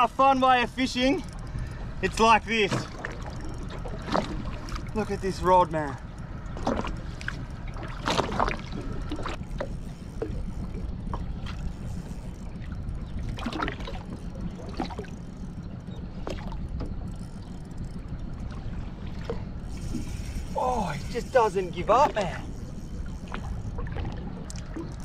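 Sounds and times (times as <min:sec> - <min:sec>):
water lapping against boat hull: 0:00.0 - 0:25.0
wind rumble on microphone: 0:00.0 - 0:25.0
knocks and splashes: 0:02.6 - 0:05.0, 0:06.5 - 0:10.4, 0:13.2 - 0:15.1.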